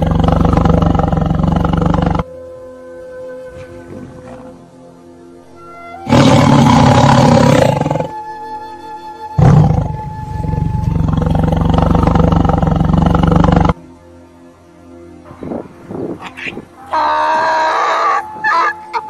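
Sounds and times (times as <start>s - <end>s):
big cat roaring: 0.0s - 2.2s, 6.0s - 8.2s, 9.4s - 13.8s
background music: 0.0s - 19.0s.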